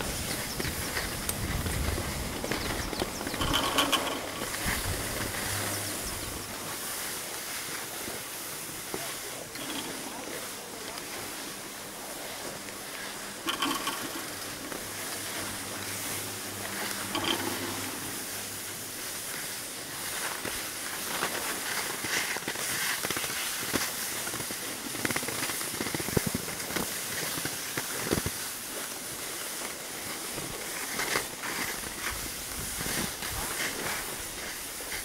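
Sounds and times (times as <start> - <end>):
skis hissing over snow: 0.0 - 35.0
short clatters: 0.2 - 6.5.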